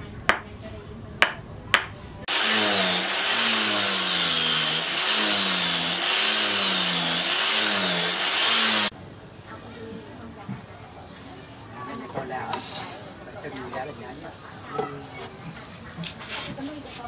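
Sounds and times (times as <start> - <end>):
angle grinder sanding wood: 2.3 - 8.9.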